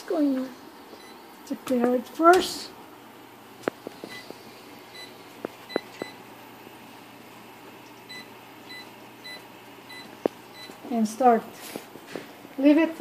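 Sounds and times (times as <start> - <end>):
oven control panel beeps: 8.1 - 10.8.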